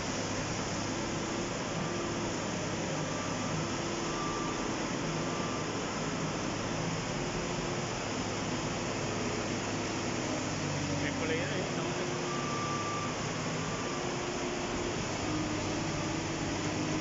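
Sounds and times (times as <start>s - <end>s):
excavator engine running: 0.1s - 17.0s
faint level tones: 10.6s - 16.9s.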